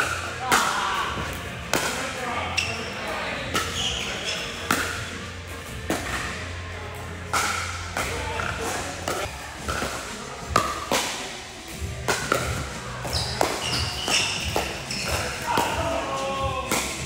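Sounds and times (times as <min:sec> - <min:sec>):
paddles hitting a ball: 0:00.0 - 0:02.2, 0:03.5 - 0:05.2, 0:05.8 - 0:06.4, 0:07.2 - 0:17.0
background music with low beat: 0:00.0 - 0:02.7, 0:03.4 - 0:17.0
voices in echoing hall: 0:12.6 - 0:17.0.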